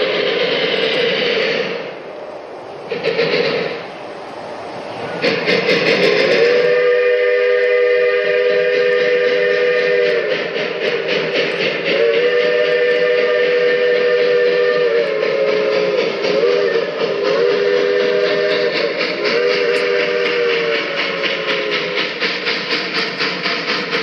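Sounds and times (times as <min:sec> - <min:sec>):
steam locomotive exhaust beat: 0:00.0 - 0:24.0
steam whistle blasts: 0:05.2 - 0:23.8.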